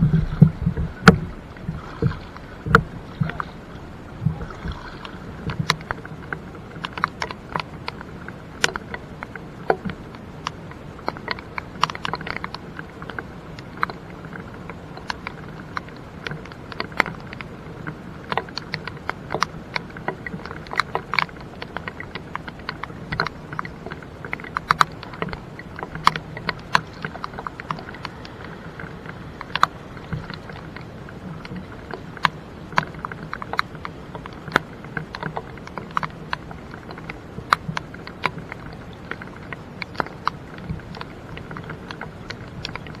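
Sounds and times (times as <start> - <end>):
low rumble: 0.0 - 6.8
raindrops ticking: 0.0 - 43.0.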